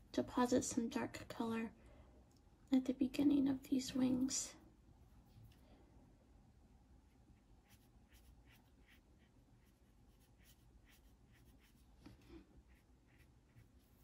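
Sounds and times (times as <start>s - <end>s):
paintbrush swishing on paper: 7.0s - 14.0s.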